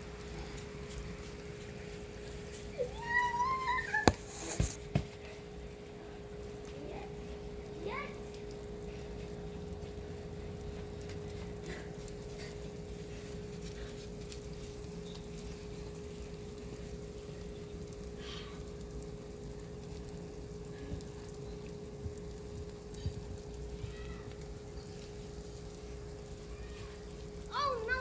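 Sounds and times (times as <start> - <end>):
steady low hum: 3.8 - 28.0.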